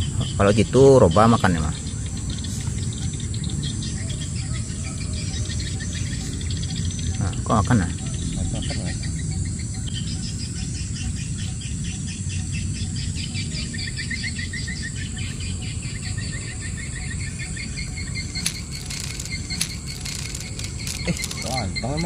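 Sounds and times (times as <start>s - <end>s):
insects trilling: 0.0s - 22.0s
sharp clicks: 18.2s - 21.7s.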